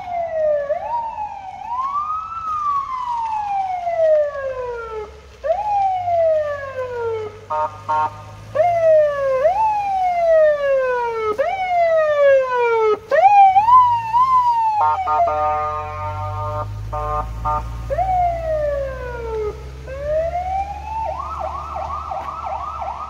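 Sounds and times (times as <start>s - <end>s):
police siren wailing: 0.0s - 23.0s
horn blasts: 7.5s - 8.3s, 14.8s - 17.9s
steady horn tone: 14.8s - 17.8s.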